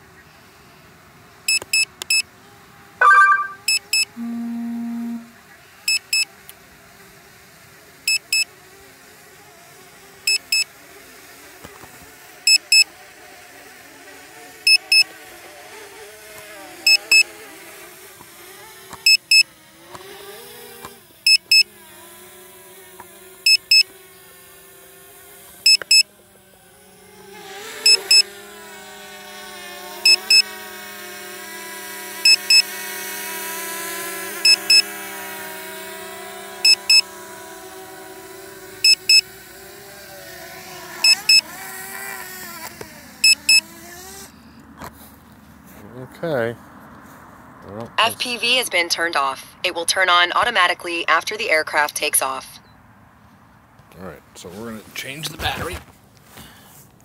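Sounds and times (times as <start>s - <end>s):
brief chime: 3.0s - 5.3s
remote controller double beeps: 3.0s - 5.3s
low tone: 3.0s - 5.4s
faint propeller hum: 3.6s - 57.0s.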